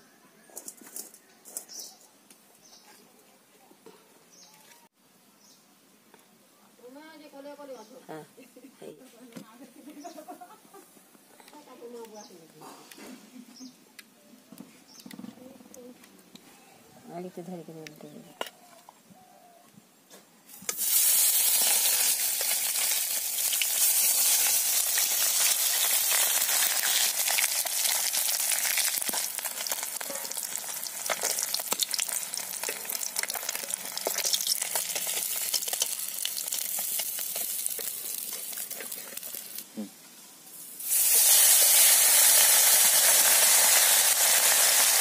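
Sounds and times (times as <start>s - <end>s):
fish sizzling in hot oil: 20.6s - 39.6s, 40.5s - 45.0s.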